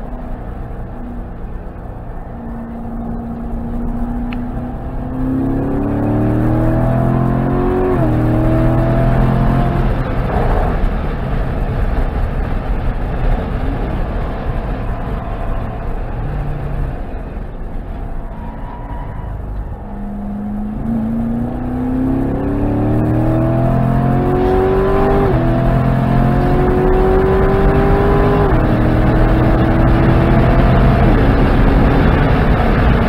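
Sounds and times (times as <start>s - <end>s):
car engine under full throttle: 0.0s - 33.0s
wind and tyre noise: 0.0s - 33.0s.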